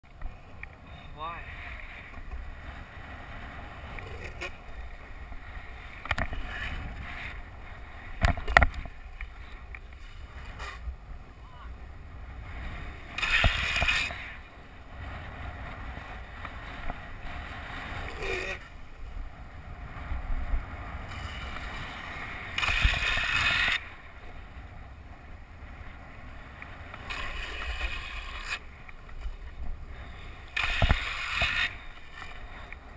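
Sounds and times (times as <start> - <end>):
skateboard wheels rolling on asphalt: 0.0 - 32.9
wind on microphone: 0.2 - 32.9
wheels sliding with hissing scrapes: 9.2 - 10.9, 12.6 - 14.6, 21.0 - 24.2, 26.6 - 32.9.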